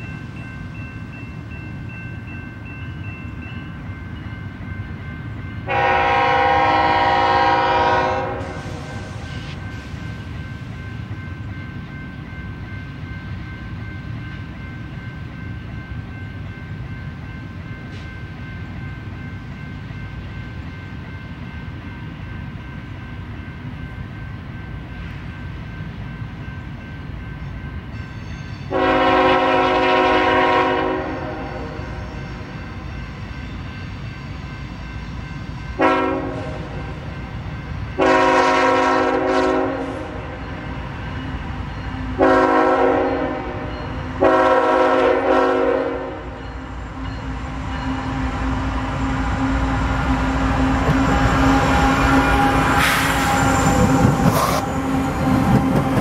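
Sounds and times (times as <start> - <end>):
train rumbling: 0.0 - 56.0
locomotive air horn blasts: 5.7 - 9.2, 28.7 - 32.0, 35.8 - 36.8, 38.0 - 40.3, 42.2 - 46.4.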